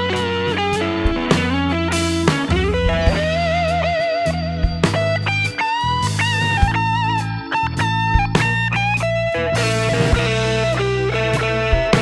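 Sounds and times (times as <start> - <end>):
blues-rock electric guitar music: 0.0 - 12.0.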